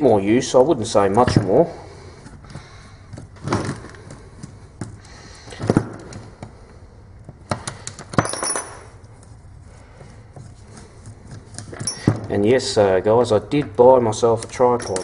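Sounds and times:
metallic clicks and clinks: 14.5 - 15.0.

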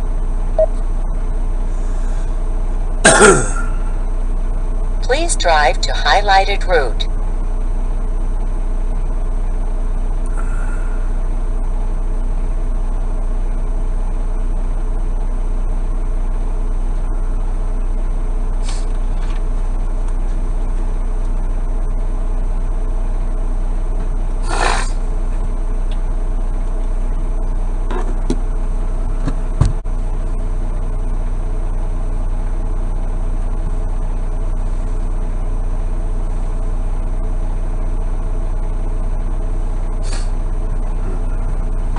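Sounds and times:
diesel truck engine idling: 0.0 - 12.3, 38.6 - 41.9.

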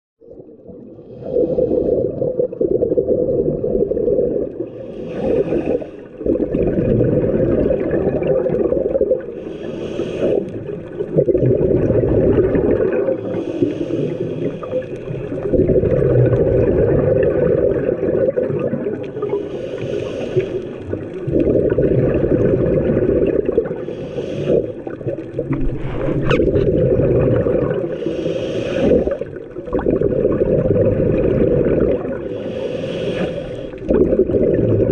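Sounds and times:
regulator hissing inhales: 4.7 - 6.1, 9.4 - 10.6, 13.2 - 14.9, 19.2 - 20.8, 23.8 - 25.0, 27.9 - 29.3, 32.3 - 33.8.

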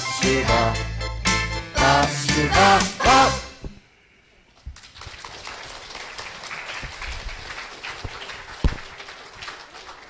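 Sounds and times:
thump: 3.6 - 3.8
audience applauding: 4.8 - 10.0.

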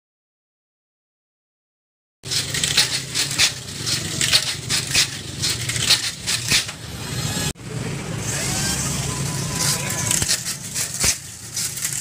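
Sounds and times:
toy car clattering on track walls: 2.2 - 6.8, 9.5 - 12.0
toy car motor whir: 2.3 - 7.6, 8.2 - 12.0.

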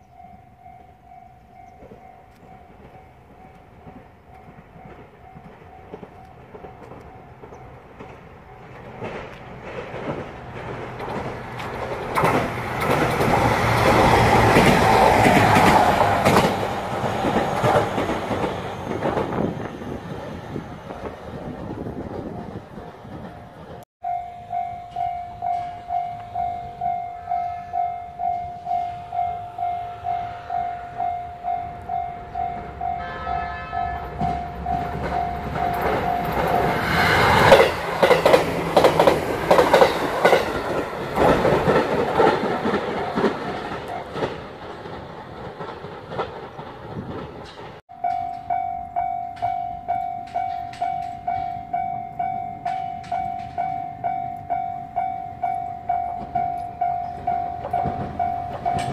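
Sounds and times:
train rumble and wheel clatter: 0.0 - 58.9
level crossing alarm ringing: 24.0 - 41.0, 47.9 - 58.9.

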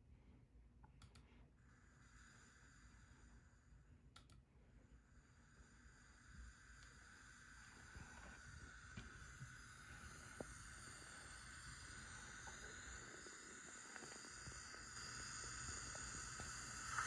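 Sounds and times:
light clicks: 0.9 - 1.3, 4.1 - 4.4
faint steam hiss: 1.4 - 17.0.

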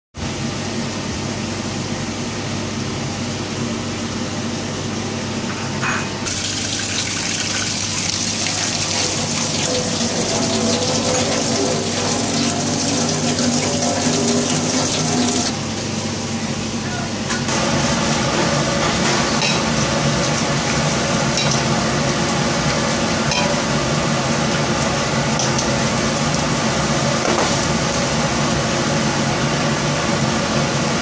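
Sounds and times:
tap water gushing into sink: 6.3 - 15.5.

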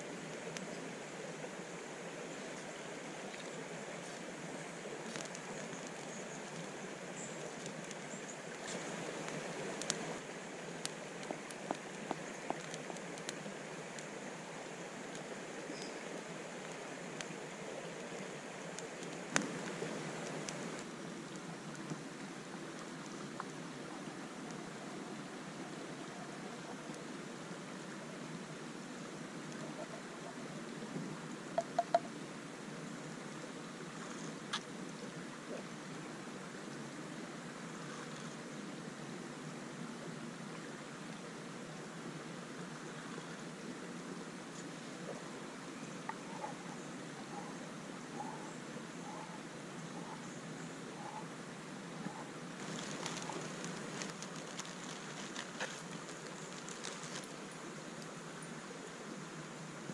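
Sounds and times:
steady rushing hiss: 0.0 - 59.9
spoon tapping wooden cup: 31.6 - 32.1.

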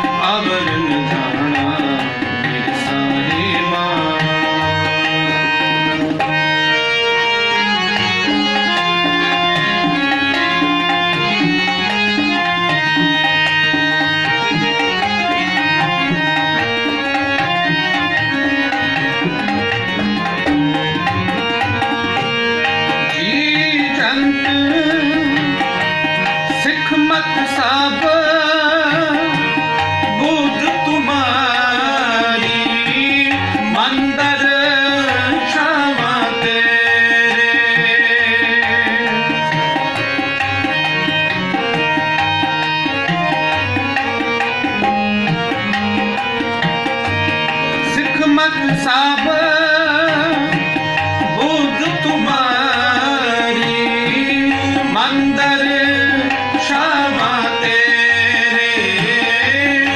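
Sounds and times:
harmonium melody: 0.0 - 59.9
tabla rhythm: 0.0 - 59.9.

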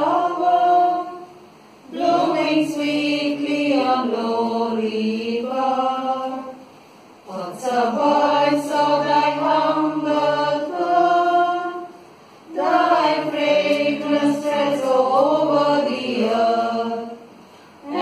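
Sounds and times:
choir singing a hymn: 0.0 - 6.7, 7.3 - 18.0.

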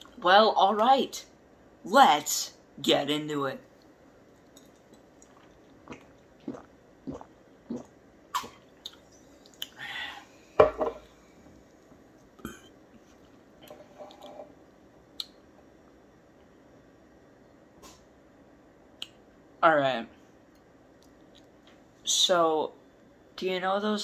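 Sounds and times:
person gulping soda: 4.6 - 9.8.

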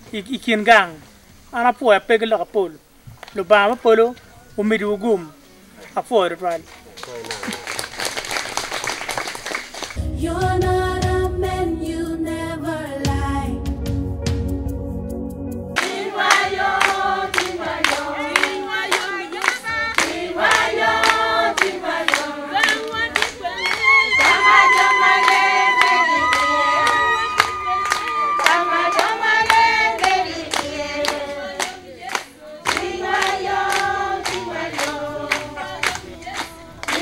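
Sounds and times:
rhythmic hand clapping: 6.5 - 10.0, 15.8 - 37.0
choir singing: 10.2 - 13.6, 15.8 - 37.0.

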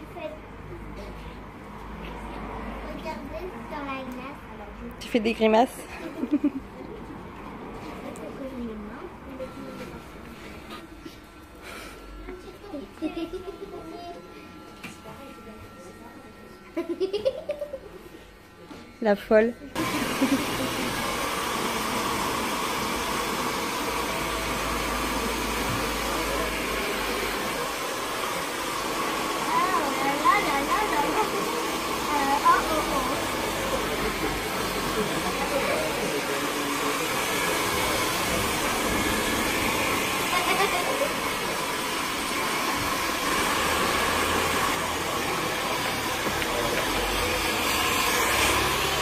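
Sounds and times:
hair dryer blowing: 19.7 - 49.0.

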